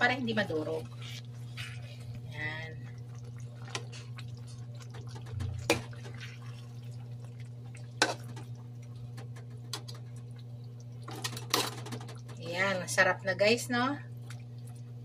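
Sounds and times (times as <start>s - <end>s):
low hum: 0.0s - 15.0s
sauce simmering and popping: 2.8s - 12.4s.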